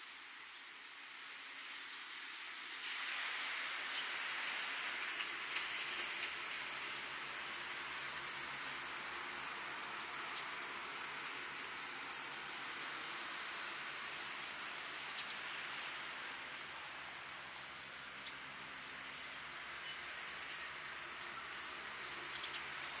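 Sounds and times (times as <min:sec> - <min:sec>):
steady outdoor hiss: 0:00.0 - 0:23.0.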